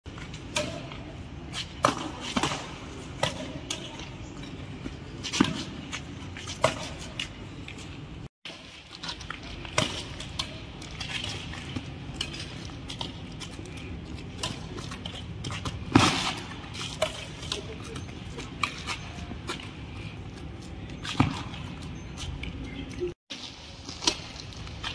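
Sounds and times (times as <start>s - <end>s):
racquets striking shuttlecock: 0.3s - 4.2s, 9.2s - 19.8s.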